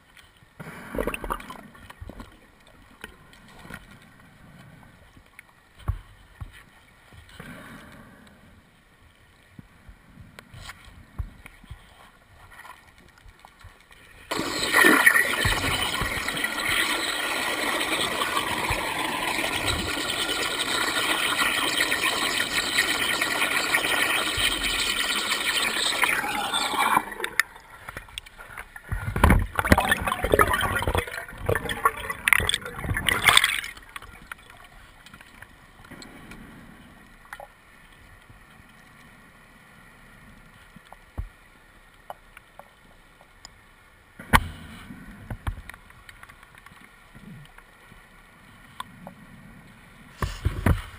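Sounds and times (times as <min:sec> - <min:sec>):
loud bubbling bursts: 0:14.3 - 0:27.6, 0:29.5 - 0:34.1
rush of air and bubbles: 0:14.3 - 0:28.2, 0:28.8 - 0:36.8.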